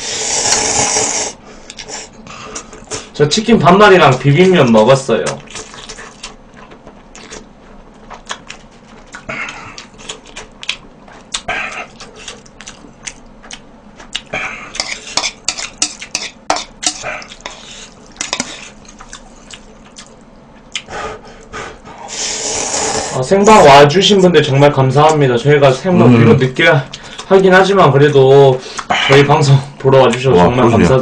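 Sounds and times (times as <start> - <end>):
slurping and chewing: 0.1 - 3.1, 5.4 - 23.2.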